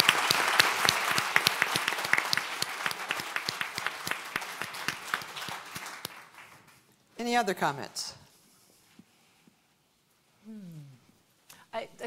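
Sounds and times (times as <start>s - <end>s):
audience applause: 0.0s - 6.8s.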